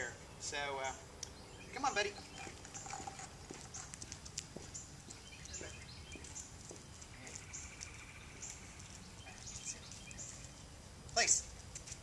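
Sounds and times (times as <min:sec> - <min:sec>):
birds chirping: 0:00.0 - 0:12.0
footsteps on concrete: 0:02.4 - 0:12.0.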